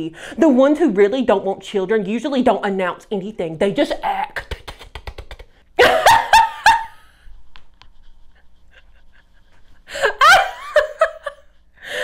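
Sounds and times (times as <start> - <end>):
woman laughing: 5.8 - 7.2, 8.0 - 12.0
woman breathing faintly: 11.4 - 12.0.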